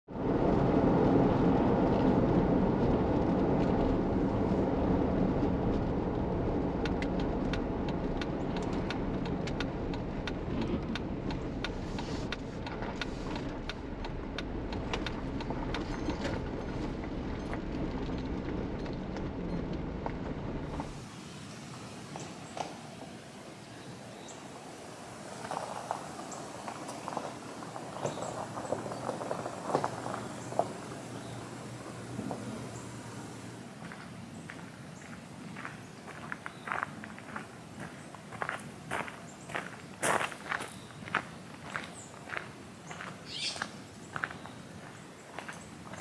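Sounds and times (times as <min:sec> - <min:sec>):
road and engine rumble: 0:00.0 - 0:46.0
small clicks or ticks: 0:06.8 - 0:16.4.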